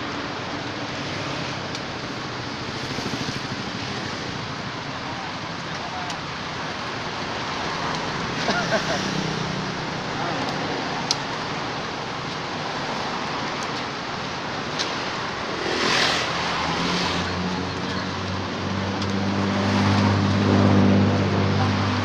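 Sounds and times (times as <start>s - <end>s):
road traffic noise: 0.0s - 22.0s
vehicle passing: 14.9s - 22.0s.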